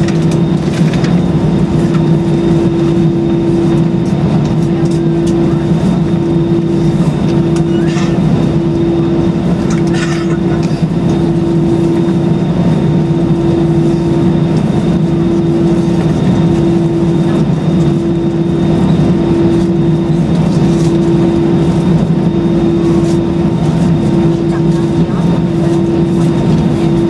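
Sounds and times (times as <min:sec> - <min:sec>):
jet engines droning in cabin: 0:00.0 - 0:27.0.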